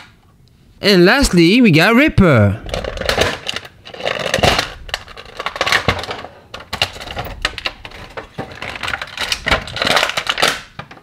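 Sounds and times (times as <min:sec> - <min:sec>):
plastic toy package clicks and rustles: 0:02.6 - 0:11.0.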